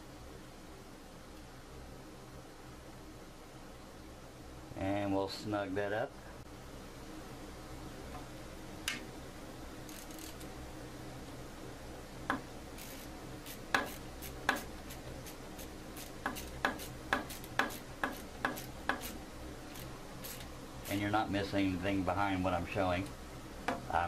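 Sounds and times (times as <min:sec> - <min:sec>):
ratchet clicking: 0:09.8 - 0:10.5, 0:12.8 - 0:14.7, 0:16.0 - 0:20.5.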